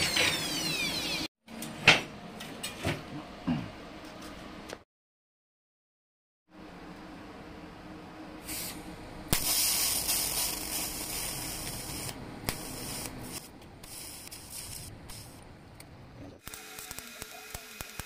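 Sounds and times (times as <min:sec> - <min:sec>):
welding arc hissing and crackling: 0:08.4 - 0:15.5, 0:16.4 - 0:18.0.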